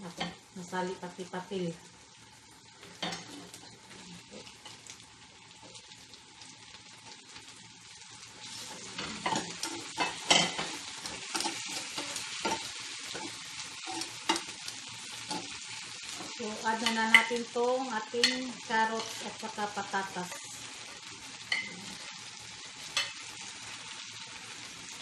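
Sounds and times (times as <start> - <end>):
chicken sizzling in frying pan: 0.0 - 25.0
metal tongs clicking on pan: 18.2 - 18.5.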